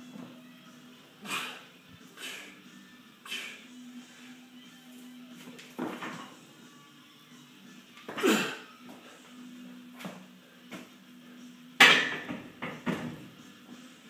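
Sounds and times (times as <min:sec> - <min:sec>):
barbell dropped on rubber mat: 0:11.8 - 0:12.4.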